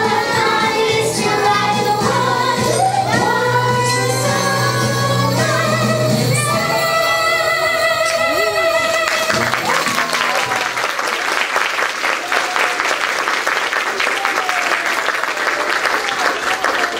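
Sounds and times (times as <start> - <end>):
recorded children's song: 0.0 - 9.2
audience applause: 8.9 - 16.9.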